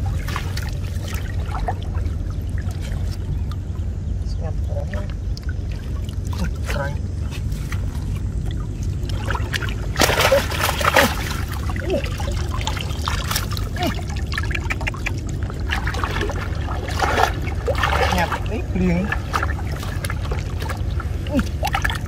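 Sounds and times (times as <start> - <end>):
water splashing: 0.0 - 22.0.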